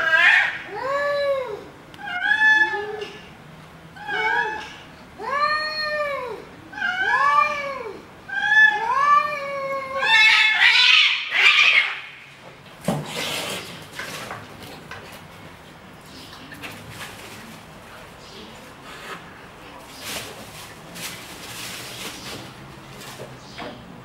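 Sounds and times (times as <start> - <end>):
cats yowling: 0.0 - 3.2, 4.0 - 12.2
cat screech: 8.3 - 12.1
cats scuffling: 12.4 - 24.0.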